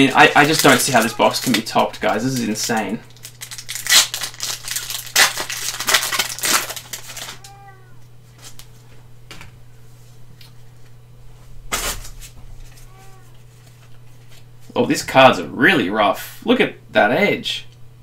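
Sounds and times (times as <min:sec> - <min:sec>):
foil wrapper crinkling: 0:00.0 - 0:08.7
cat meowing faintly: 0:07.2 - 0:08.1, 0:12.6 - 0:13.5.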